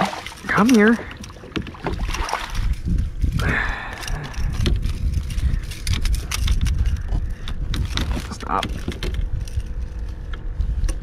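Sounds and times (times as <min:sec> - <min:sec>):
water splash: 0:00.0 - 0:02.6
net and fish knocking on kayak: 0:00.1 - 0:02.6.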